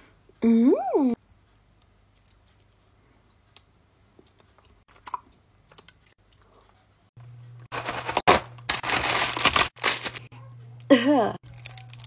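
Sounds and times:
candy chewing and crunching: 0:11.4 - 0:12.0.

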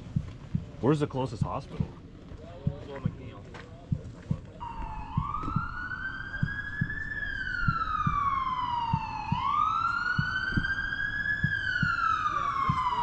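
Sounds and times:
low regular thudding: 0:00.0 - 0:13.0
emergency siren wailing: 0:04.6 - 0:13.0.

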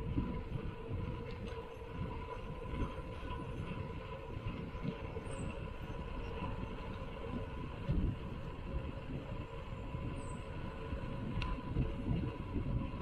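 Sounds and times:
bike tyres rumbling on concrete: 0:00.0 - 0:13.0
faint steady hum: 0:00.0 - 0:13.0
wind on microphone: 0:00.0 - 0:13.0.

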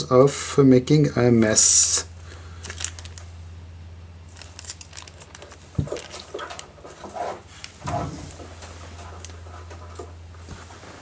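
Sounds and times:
steady low hum: 0:00.0 - 0:11.0
plastic crinkling: 0:02.2 - 0:03.4, 0:04.2 - 0:09.4.

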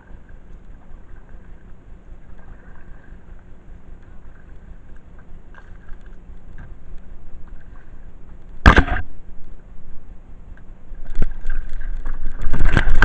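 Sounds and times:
paddle swish and splash: 0:00.0 - 0:06.8, 0:07.4 - 0:08.1, 0:11.0 - 0:13.0.

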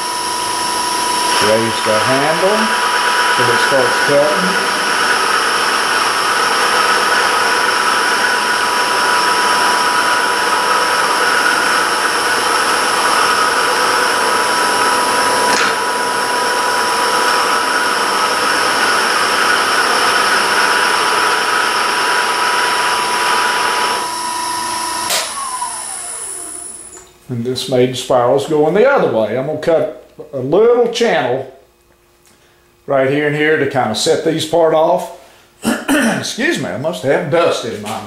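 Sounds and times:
cutter hissing on spinning wood: 0:00.0 - 0:27.0
wood lathe whine: 0:00.0 - 0:27.1.

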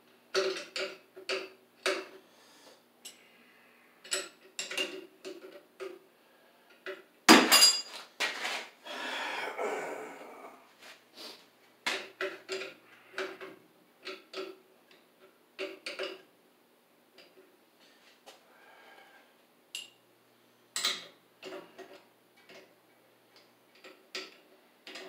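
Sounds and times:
metal tools clinking: 0:07.4 - 0:08.0.

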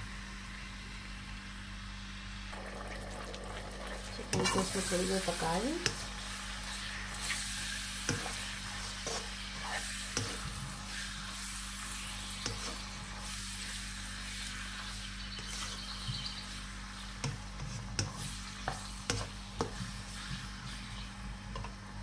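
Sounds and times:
chicken sizzling in hot oil: 0:00.0 - 0:22.0
spatula scraping and tapping pan: 0:04.3 - 0:04.9, 0:05.7 - 0:21.8.

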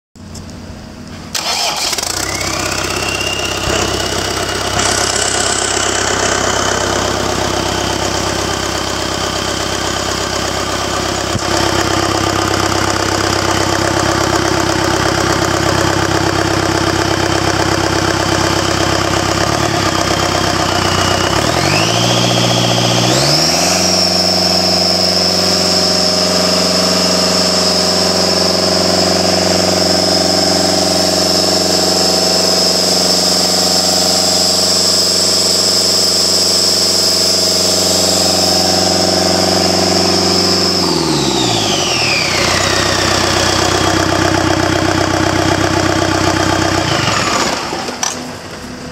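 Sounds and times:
diesel engine starting and running: 0:00.2 - 0:48.9
turbo whine: 0:01.0 - 0:15.4, 0:17.0 - 0:48.3.

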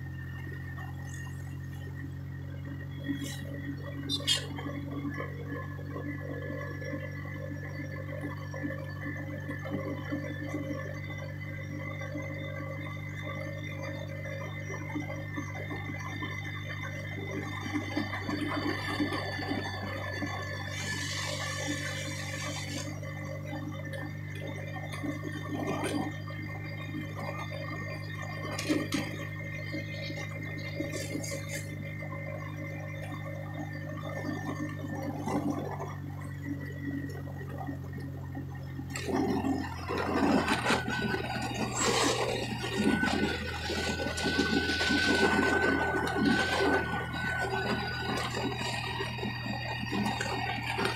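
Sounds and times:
road noise: 0:00.0 - 0:05.0, 0:17.8 - 0:23.0, 0:38.9 - 0:50.9
vehicle engine hum: 0:00.0 - 0:50.9.

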